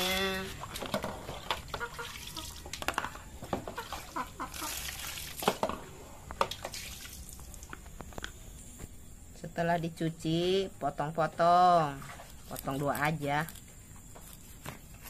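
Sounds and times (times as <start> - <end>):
water splashing and dripping: 0.0 - 5.8, 6.4 - 7.8.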